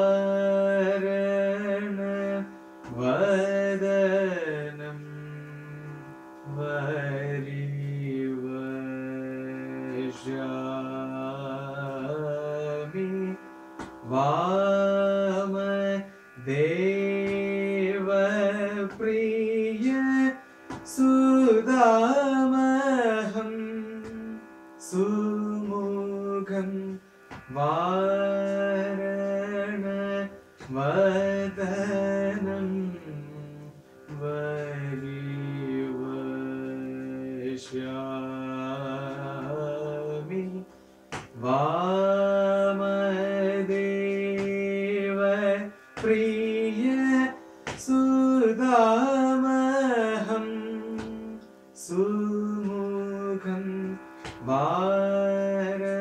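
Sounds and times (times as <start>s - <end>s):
man singing with ornamented notes: 0.0s - 56.0s
man breathing: 40.7s - 41.1s.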